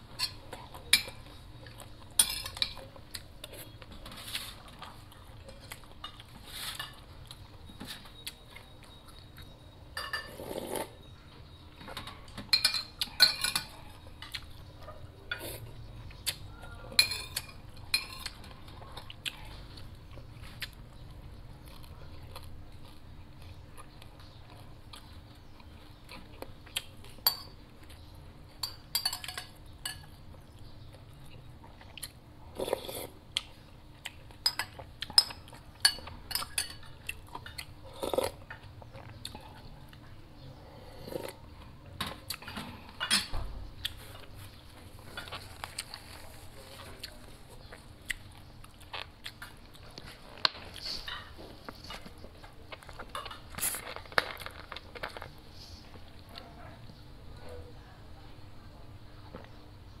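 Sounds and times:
spoon clinking on ceramic bowls: 0:02.2 - 0:02.9, 0:09.9 - 0:10.4, 0:11.9 - 0:14.3, 0:16.9 - 0:18.5, 0:27.2 - 0:27.6, 0:28.6 - 0:30.2, 0:34.4 - 0:37.6
person slurping soup: 0:10.3 - 0:11.0, 0:40.7 - 0:41.4.

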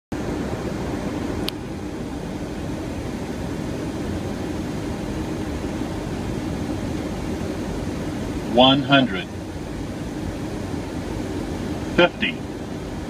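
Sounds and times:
airflow and engine noise: 0:00.1 - 0:13.0.

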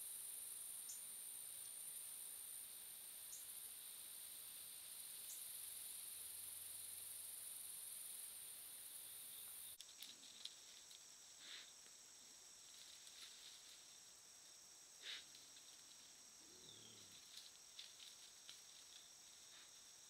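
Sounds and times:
night insects chirring: 0:00.0 - 0:20.0
soft ticks and rustles: 0:09.8 - 0:12.0, 0:12.6 - 0:14.0, 0:15.1 - 0:16.2, 0:17.0 - 0:20.0
high hiss: 0:14.9 - 0:15.6.

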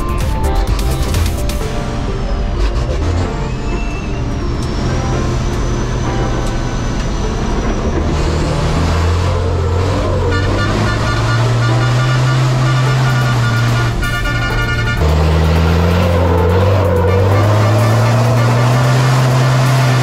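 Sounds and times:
truck engine running hard: 0:00.1 - 0:20.0.

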